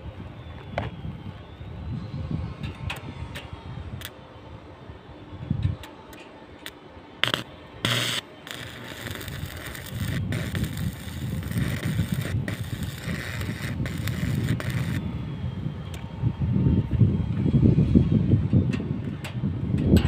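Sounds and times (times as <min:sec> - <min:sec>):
crackling welding arc: 0:06.1 - 0:15.0
welding arc strikes: 0:07.2 - 0:15.0.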